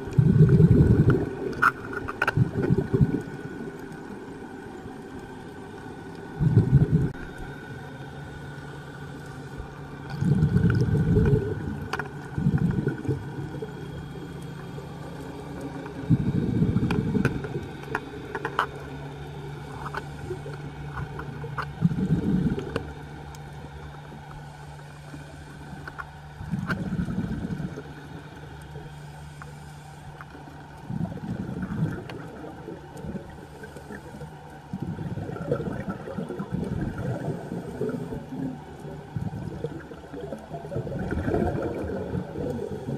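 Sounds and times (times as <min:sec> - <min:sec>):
bubbles gurgling underwater: 0:00.0 - 0:01.7, 0:02.3 - 0:03.8, 0:06.4 - 0:07.4, 0:10.1 - 0:14.3, 0:15.5 - 0:17.8, 0:20.2 - 0:22.9, 0:26.4 - 0:28.3, 0:30.8 - 0:34.0, 0:34.6 - 0:42.9
steady low hum: 0:00.0 - 0:42.9
faint clicks: 0:07.1 - 0:26.9, 0:27.5 - 0:34.8.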